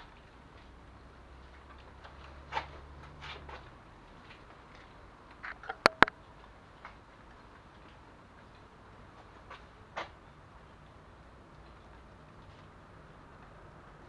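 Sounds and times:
sharp metallic clicks: 5.3s - 6.2s.

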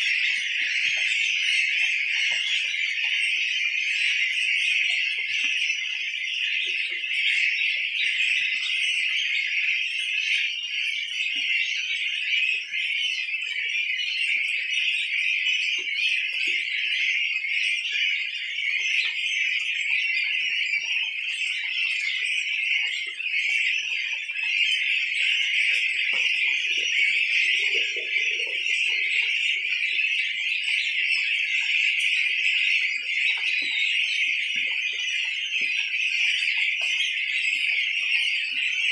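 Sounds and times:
goslings peeping: 15.6s - 38.9s.

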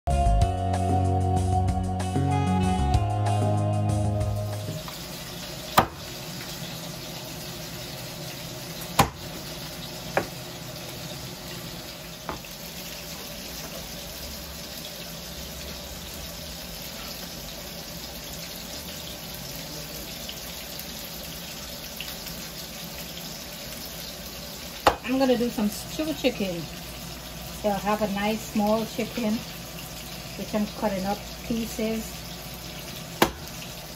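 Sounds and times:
cleaver knocking on cutting board: 5.8s - 6.0s, 9.0s - 9.2s, 33.2s - 33.5s.

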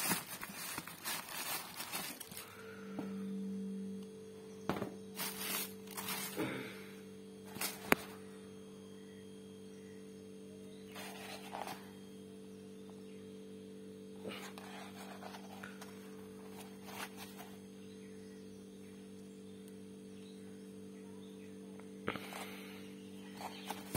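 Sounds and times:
sneaker handled in cardboard box: 0.0s - 2.5s, 5.2s - 6.6s, 7.5s - 8.1s, 10.9s - 11.9s, 14.3s - 17.5s
tissue paper rustling: 0.0s - 2.6s, 5.2s - 6.6s, 7.5s - 8.2s, 10.9s - 11.9s, 14.3s - 17.6s
steady low hum: 0.0s - 23.9s.

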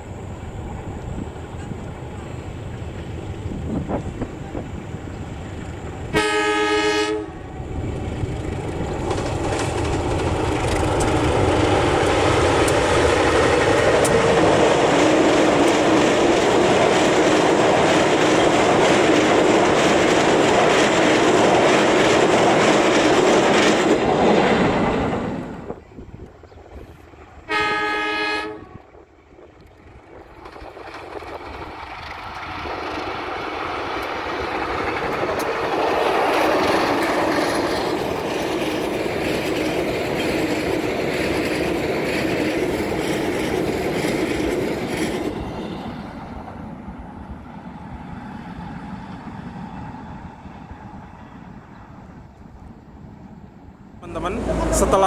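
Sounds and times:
train wheels rumbling on rails: 0.0s - 55.0s
train horn blast: 6.1s - 7.7s, 27.4s - 29.0s.

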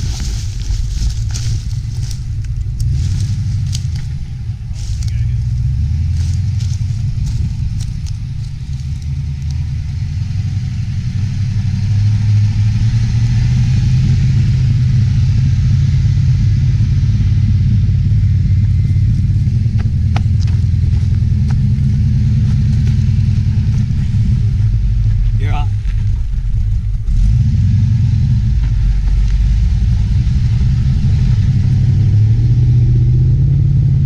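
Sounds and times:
engine running under load: 0.0s - 34.0s.

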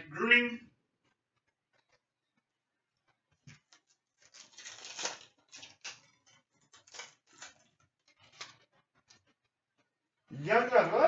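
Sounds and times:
foil wrapper crinkling: 3.4s - 9.5s.

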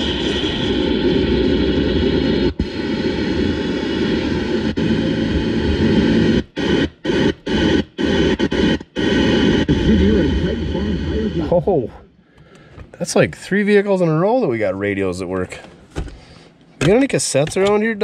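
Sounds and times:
car radio static: 0.0s - 12.0s.

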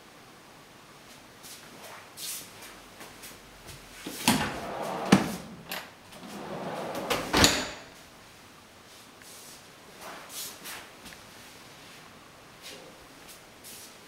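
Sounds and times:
dishwasher drawer sliding on rails: 4.1s - 7.9s
drawer closing with a thud: 4.2s - 7.9s.

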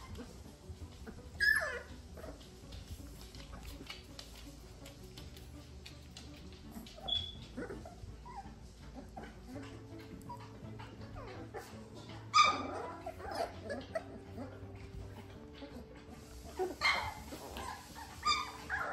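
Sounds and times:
puppies squeaking and yipping: 0.0s - 4.3s, 6.3s - 18.9s
puppy yelp: 1.0s - 2.4s, 6.8s - 18.9s.

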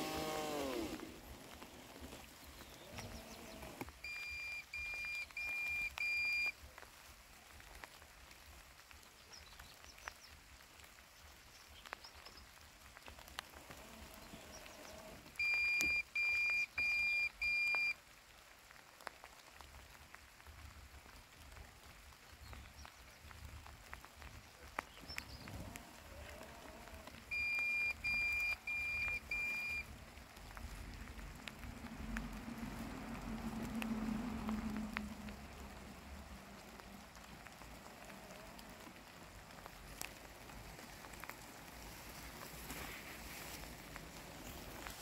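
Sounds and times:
robotic lawn mower beeping: 0.0s - 1.1s, 3.4s - 6.5s, 15.4s - 17.9s, 27.3s - 29.8s
faint rain patter: 0.0s - 45.0s.

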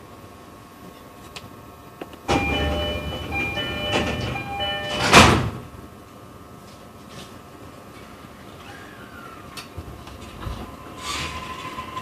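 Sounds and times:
stationary electric train noise: 2.0s - 12.0s
electronic chime melody: 2.3s - 5.2s.

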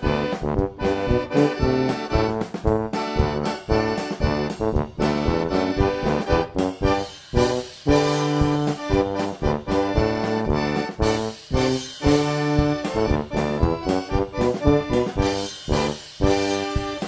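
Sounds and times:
accordion playing bouncy tune: 0.0s - 17.0s
steady beat: 0.0s - 17.0s.

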